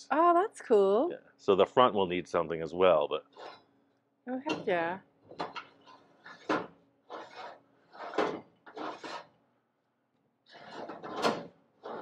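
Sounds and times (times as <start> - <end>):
metal door hinge scraping: 3.3 - 3.6, 5.3 - 9.4, 10.5 - 12.0.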